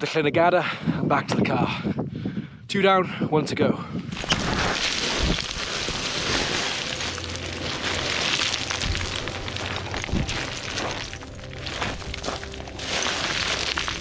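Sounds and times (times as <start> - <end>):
boots crunching on loose scree: 4.1 - 14.0
faint music: 5.6 - 14.0.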